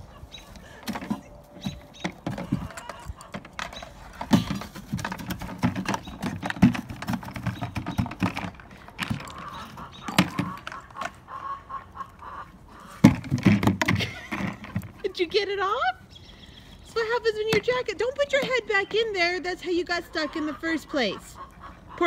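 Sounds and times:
plastic bucket knocking and scraping: 0.8s - 11.2s, 12.9s - 15.0s.

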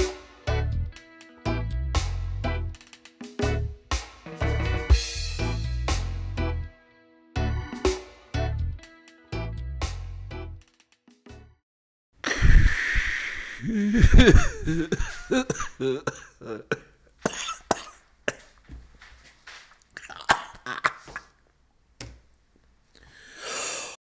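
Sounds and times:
man coughing: 13.6s - 18.5s, 20.0s - 21.3s.

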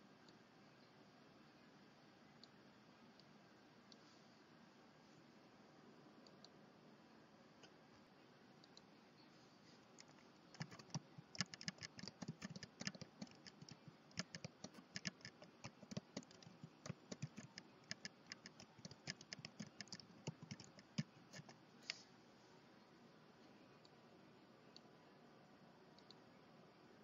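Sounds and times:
typing on computer keyboard: 10.0s - 21.6s.

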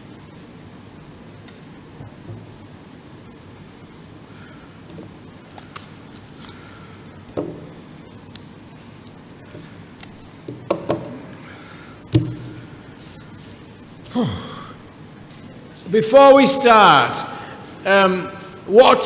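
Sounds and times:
knocks on wooden lectern: 10.5s - 11.2s, 12.1s - 12.5s.

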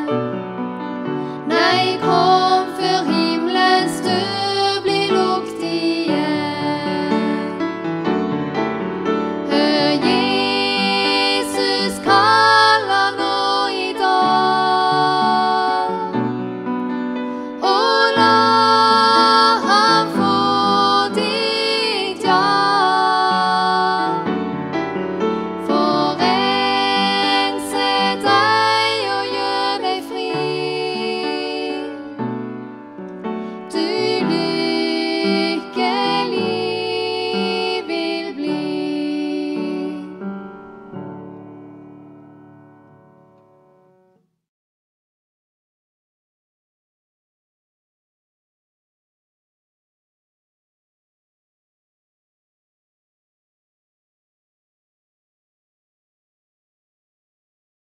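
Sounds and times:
upright piano: 0.0s - 44.1s
women singing together: 1.4s - 7.6s, 9.5s - 16.1s, 17.6s - 24.2s, 25.6s - 32.2s, 33.7s - 40.2s.

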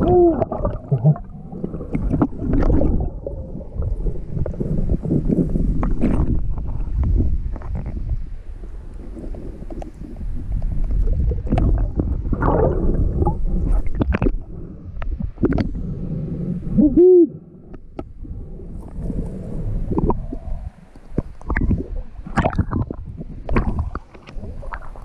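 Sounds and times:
person hooting underwater: 0.0s - 1.3s, 16.7s - 17.7s
muffled underwater water rumble: 0.0s - 25.0s.

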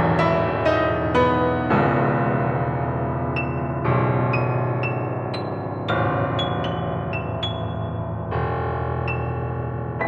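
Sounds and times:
slow solo piano: 0.0s - 10.0s.

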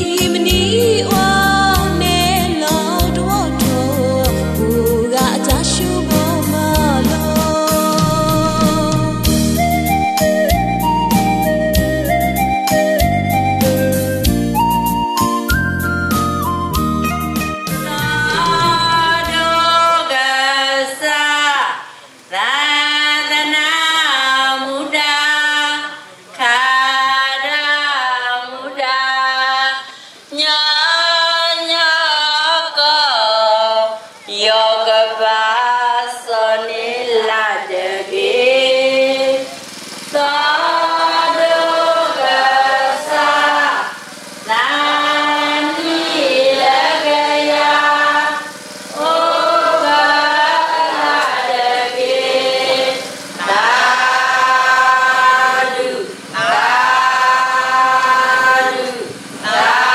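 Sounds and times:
person singing in a high voice: 0.0s - 9.3s, 17.8s - 36.4s
person breathing: 29.8s - 30.3s.

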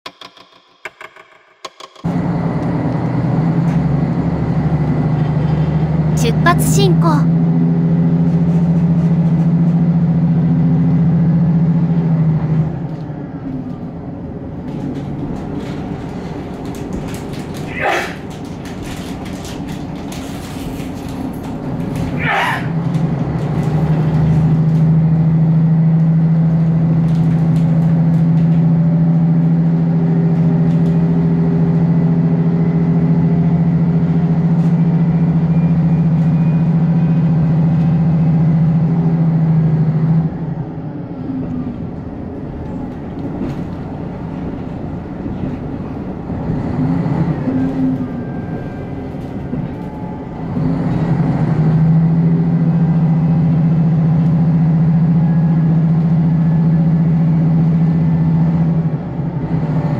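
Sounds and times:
railcar diesel engine drone: 2.0s - 59.9s
train running noise: 2.1s - 59.9s.

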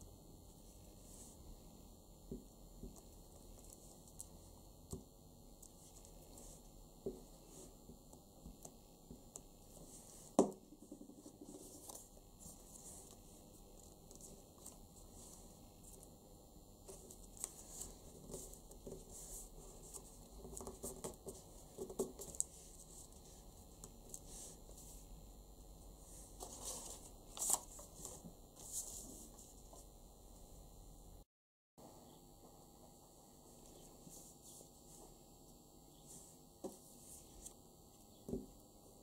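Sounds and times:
paper rustling: 26.4s - 29.6s.

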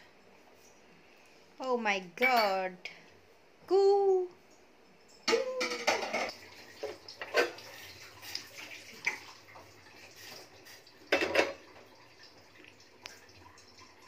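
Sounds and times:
pan clattering: 5.3s - 7.7s, 11.1s - 11.6s.

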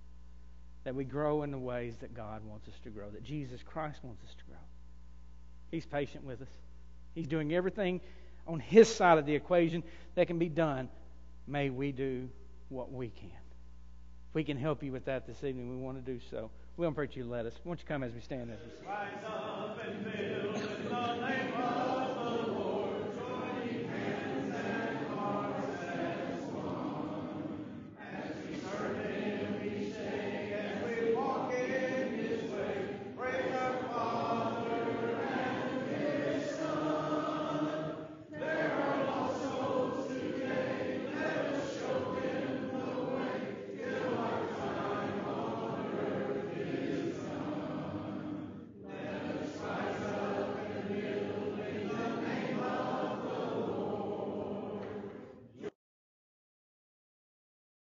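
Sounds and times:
congregation singing a hymn: 14.6s - 55.7s.

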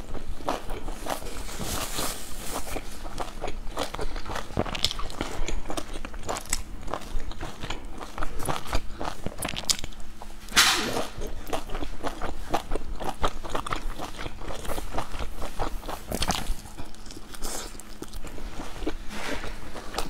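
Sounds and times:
chewing dumplings: 0.0s - 20.0s.

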